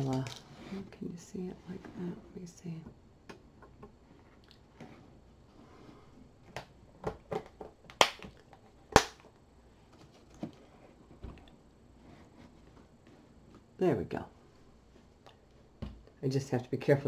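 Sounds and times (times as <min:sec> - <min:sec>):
loud sharp snaps: 0:07.9 - 0:09.3.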